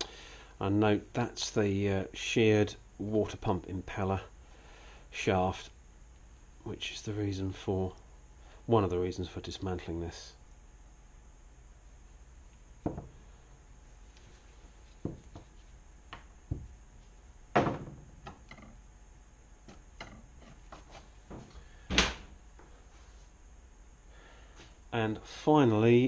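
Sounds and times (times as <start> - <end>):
tools knocking on wooden workbench: 12.8 - 13.2, 15.0 - 15.5, 16.1 - 16.7, 17.5 - 18.8.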